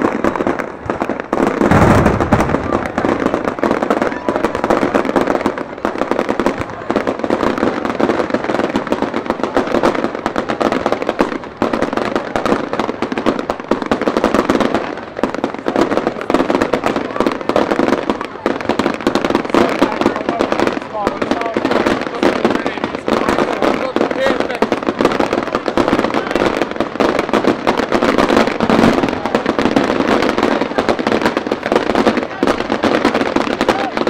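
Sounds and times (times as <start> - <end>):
deep firework boom: 0.0 - 34.0
fireworks crackling and popping: 0.0 - 34.0.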